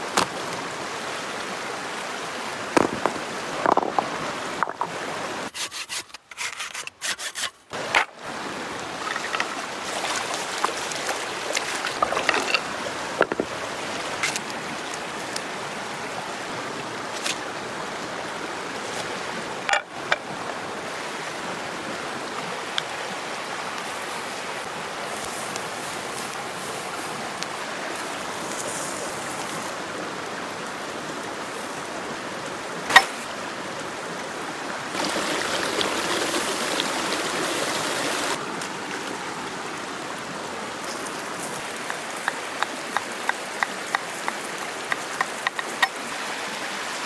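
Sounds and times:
stream running over rocks: 0:00.0 - 0:47.0
corn being washed and handled: 0:02.8 - 0:15.6, 0:17.0 - 0:17.5, 0:23.7 - 0:29.8, 0:34.9 - 0:39.2, 0:40.8 - 0:47.0.

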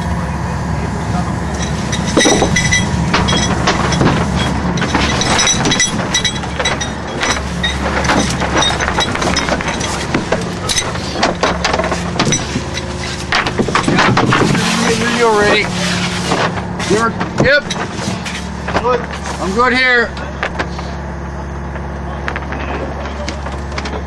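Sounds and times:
boat engine droning: 0:00.0 - 0:24.0
clinks and knocks: 0:01.5 - 0:15.7, 0:16.3 - 0:19.2.

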